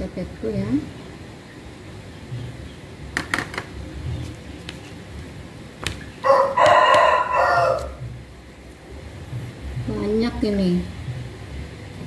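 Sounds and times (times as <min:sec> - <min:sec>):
rooster crowing: 0:06.2 - 0:08.1.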